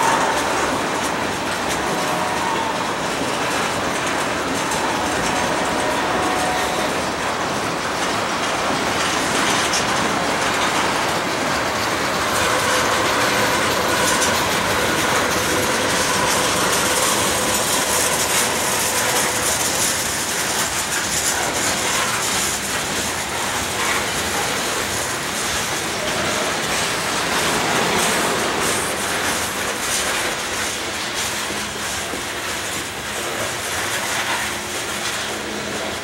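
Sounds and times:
train wheels clacking on rails: 0:00.0 - 0:36.0.

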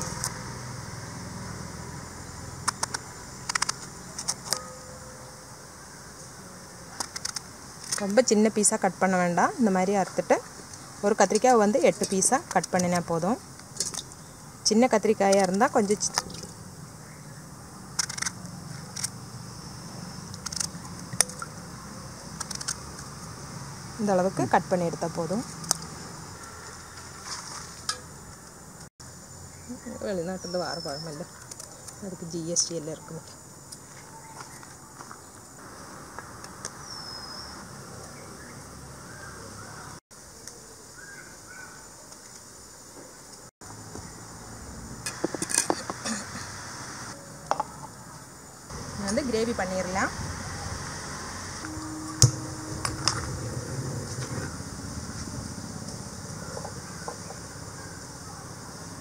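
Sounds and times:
steady background hiss: 0:27.6 - 0:59.0
birds chirping: 0:29.5 - 0:35.6, 0:36.7 - 0:40.0, 0:45.8 - 0:59.0
steady low hum: 0:48.7 - 0:59.0.

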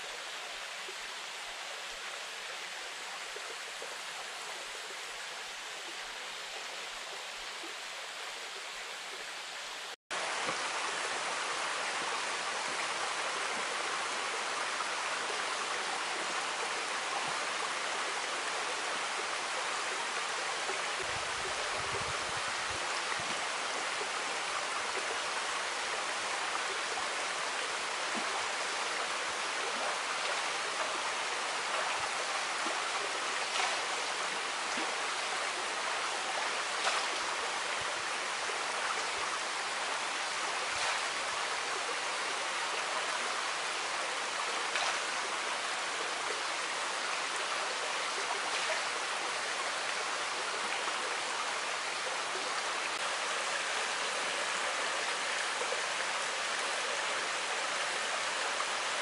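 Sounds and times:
waterfall rushing into pool: 0:09.3 - 0:59.0
water splashes: 0:27.8 - 0:47.4.

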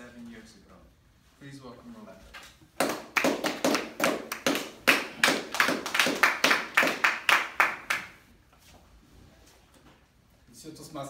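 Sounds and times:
audience clapping: 0:02.8 - 0:08.3.

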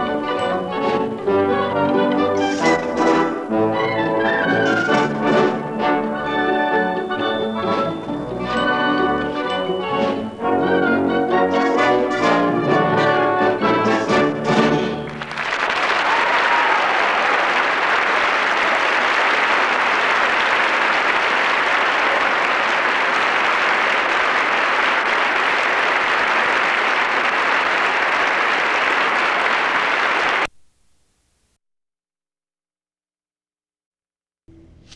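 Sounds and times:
orchestra final chord: 0:10.4 - 0:15.3
audience applauding: 0:11.5 - 0:30.5.

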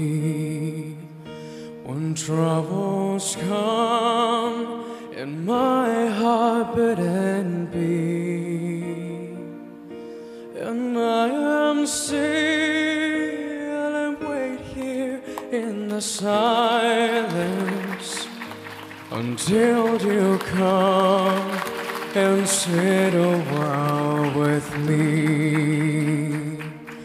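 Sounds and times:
man singing a slow ballad: 0:00.0 - 0:27.0
instrumental backing: 0:12.1 - 0:27.0.

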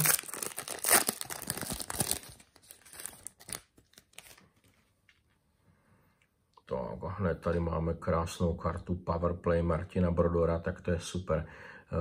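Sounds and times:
card pack peeled apart: 0:00.0 - 0:04.7
foil wrapper crinkling: 0:00.0 - 0:04.8.

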